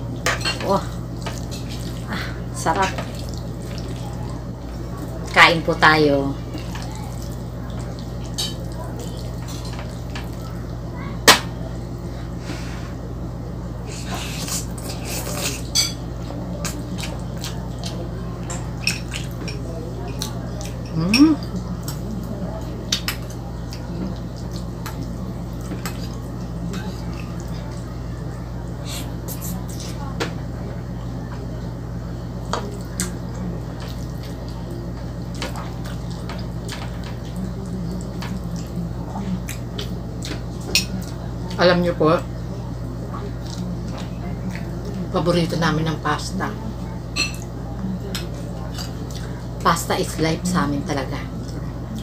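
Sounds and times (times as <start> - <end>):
low steady hum: 0.0 - 52.0
wet chewing: 14.0 - 28.0, 43.1 - 45.0.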